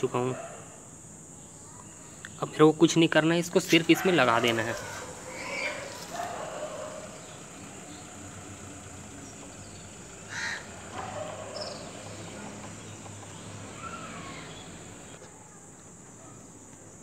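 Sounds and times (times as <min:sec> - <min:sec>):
high-pitched hiss: 0:00.0 - 0:10.7
bird calling: 0:03.7 - 0:15.2.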